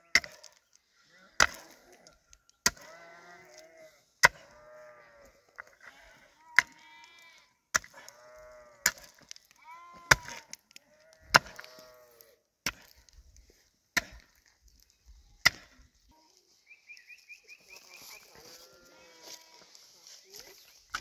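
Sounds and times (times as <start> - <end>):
pickaxe striking stony ground: 0.1 - 0.6, 1.4 - 1.8, 2.6 - 3.0, 4.2 - 4.5, 7.7 - 8.2, 8.8 - 10.6, 11.2 - 11.8, 12.6 - 13.1, 14.0 - 14.5, 15.4 - 15.8
livestock bleating: 2.8 - 8.9, 9.6 - 12.4, 17.8 - 20.5.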